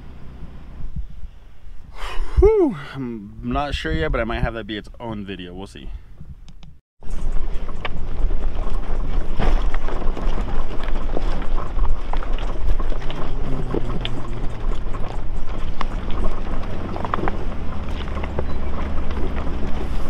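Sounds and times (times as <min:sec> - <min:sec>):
engine droning: 0:00.0 - 0:03.6, 0:07.0 - 0:20.0
tyres crunching on rocks: 0:07.6 - 0:20.0.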